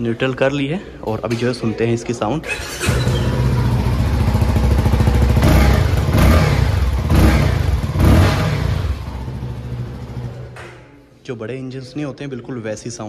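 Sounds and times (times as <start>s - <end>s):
motorcycle engine idling: 2.8s - 10.6s.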